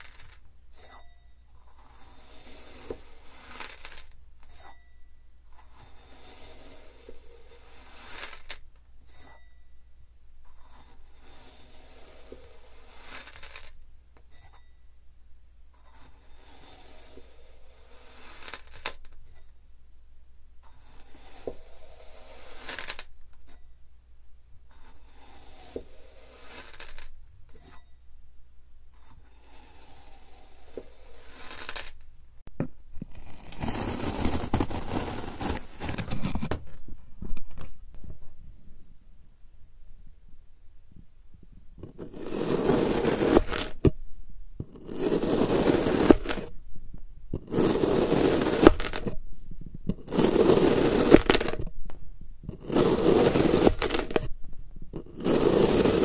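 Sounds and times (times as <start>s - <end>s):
faint metallic clink: 0.7s - 1.8s, 4.4s - 5.6s, 9.0s - 10.0s, 14.2s - 15.2s, 23.4s - 24.2s, 27.5s - 28.3s
gritty scrape of sand: 1.6s - 4.7s, 5.6s - 8.6s, 10.5s - 13.8s, 15.8s - 19.0s, 20.6s - 23.1s, 24.7s - 27.8s, 29.0s - 32.0s, 33.1s - 36.5s, 41.8s - 43.9s, 44.6s - 46.6s, 47.4s - 49.2s, 49.9s - 51.7s, 52.5s - 54.3s, 54.9s - 56.0s.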